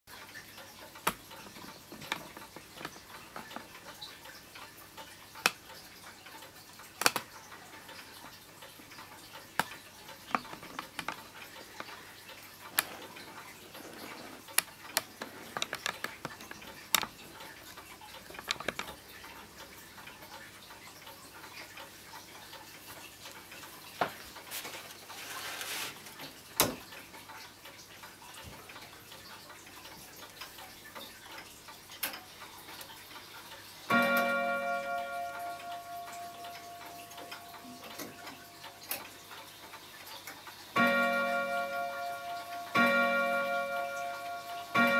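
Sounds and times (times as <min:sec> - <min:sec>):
clock ticking: 0:00.1 - 0:24.6, 0:26.2 - 0:44.9
short rustle: 0:24.5 - 0:26.0.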